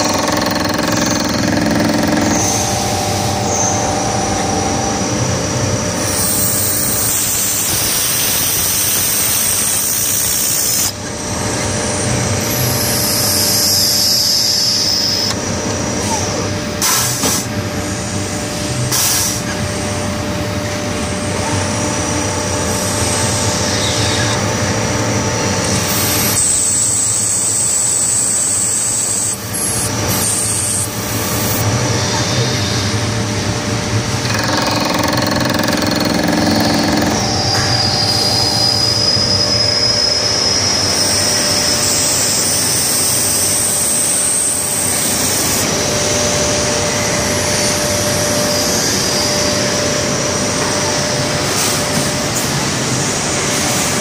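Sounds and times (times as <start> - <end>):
lathe whining: 0.0 - 10.5, 32.7 - 47.7.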